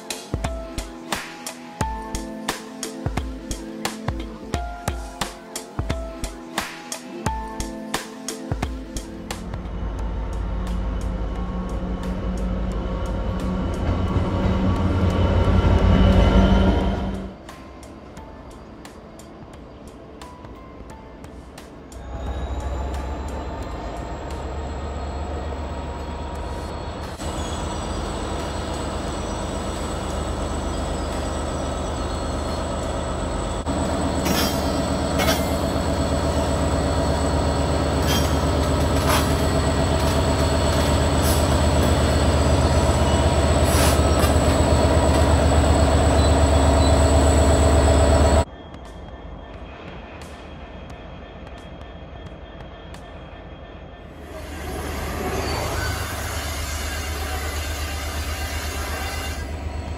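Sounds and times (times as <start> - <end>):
diesel locomotive engine under load: 9.0 - 19.5, 21.8 - 59.9
train wheels squealing: 21.9 - 59.9.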